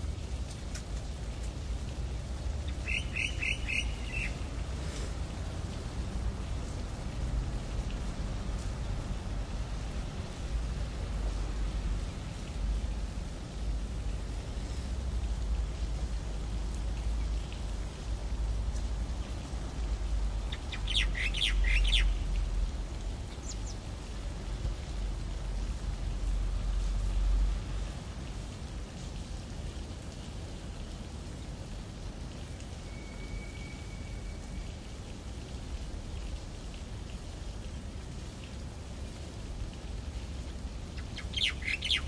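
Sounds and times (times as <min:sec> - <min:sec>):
rain hissing: 0:00.0 - 0:42.0
bird calling: 0:02.7 - 0:04.4, 0:20.5 - 0:22.2, 0:41.0 - 0:42.0.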